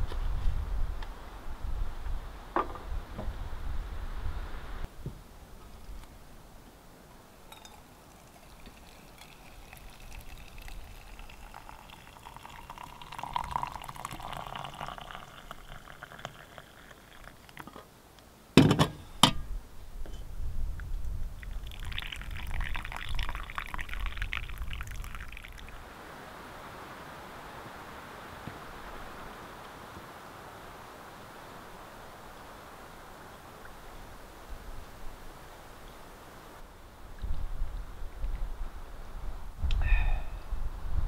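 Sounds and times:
coffee trickling into metal mug: 0:07.5 - 0:17.8, 0:21.4 - 0:25.8.

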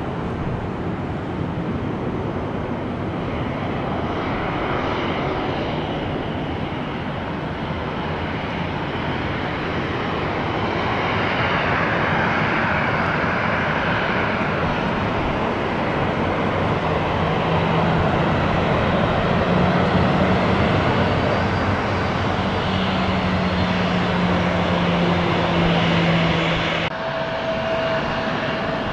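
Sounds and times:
jet engines rushing: 0:00.0 - 0:28.9.

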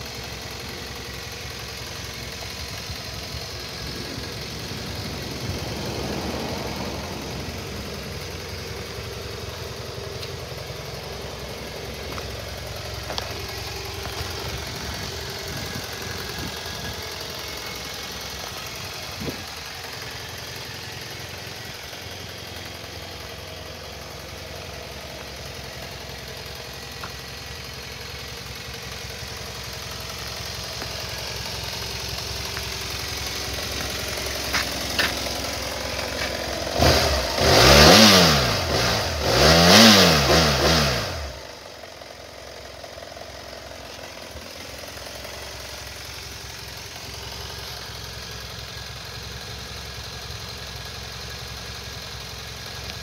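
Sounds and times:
motorcycle engine idling: 0:00.0 - 0:53.0
motorcycle throttle revs: 0:32.9 - 0:41.6.

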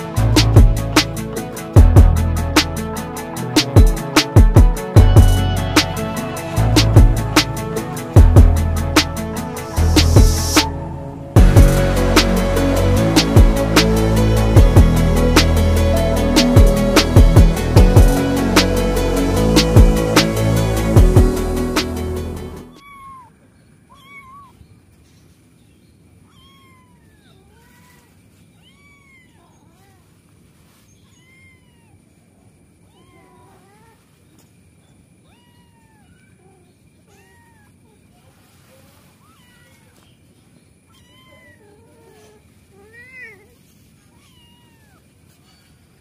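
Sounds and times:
kitten mewing: 0:31.2 - 0:32.1.

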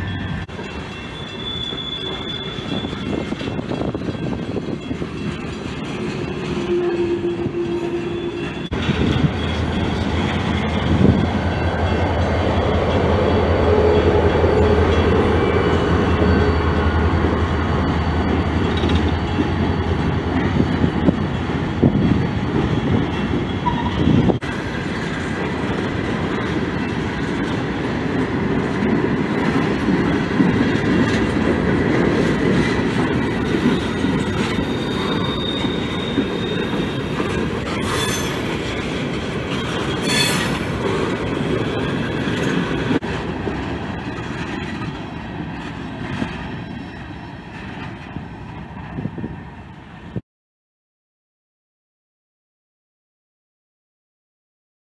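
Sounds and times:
wheel squeals: 0:00.0 - 0:11.0, 0:33.3 - 0:43.0
train wheels rolling on rails: 0:00.0 - 0:50.1.

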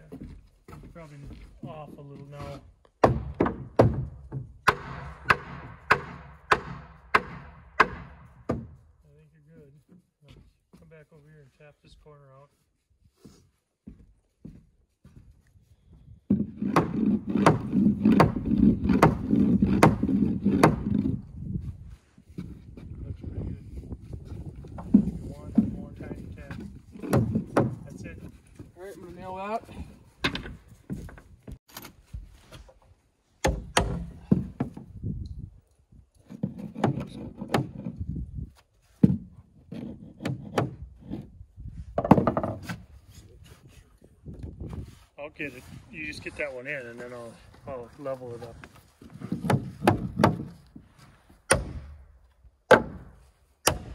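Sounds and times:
wooden lumber knocking and rubbing: 0:00.1 - 0:08.9, 0:16.3 - 0:21.3, 0:24.0 - 0:29.2, 0:29.8 - 0:35.0, 0:36.2 - 0:38.2, 0:38.9 - 0:43.6, 0:48.4 - 0:53.9
hammer driving nail into wood: 0:03.0 - 0:08.7, 0:16.3 - 0:21.1, 0:33.4 - 0:34.4, 0:39.8 - 0:40.9, 0:49.4 - 0:50.6, 0:51.5 - 0:52.0, 0:52.7 - 0:53.9.

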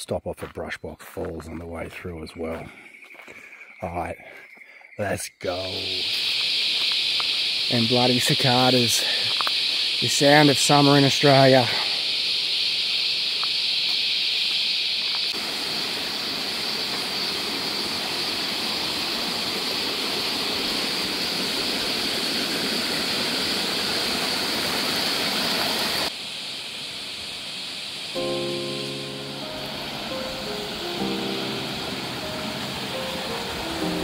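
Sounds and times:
cicadas buzzing: 0:01.5 - 0:34.0
creek rushing over rocks: 0:29.4 - 0:34.0.

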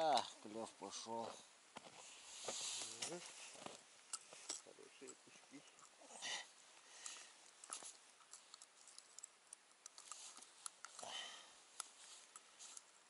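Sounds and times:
small clicks and rustles: 0:06.7 - 0:13.0.

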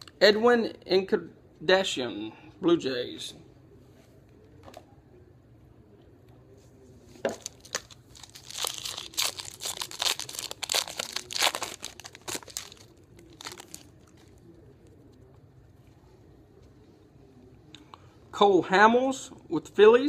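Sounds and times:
foil wrapper tearing and crinkling: 0:07.4 - 0:14.4.

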